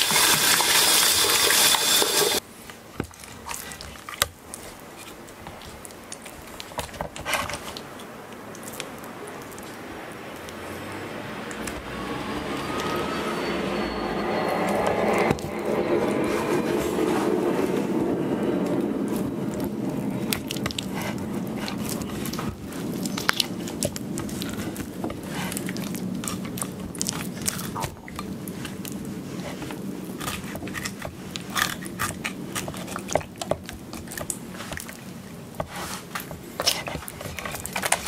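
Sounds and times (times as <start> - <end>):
low hum: 11.1 - 30.8
knife crunching through fish bones: 20.1 - 38.0.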